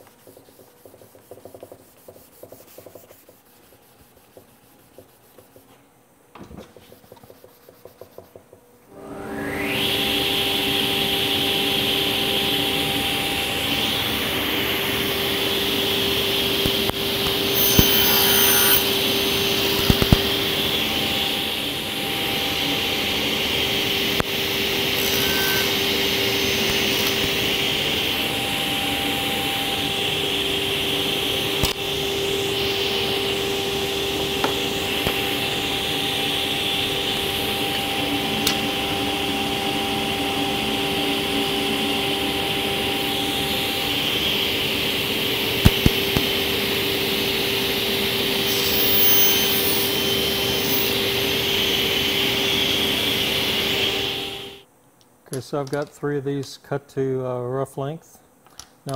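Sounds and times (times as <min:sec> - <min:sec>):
table saw cutting wood: 0:08.9 - 0:54.6.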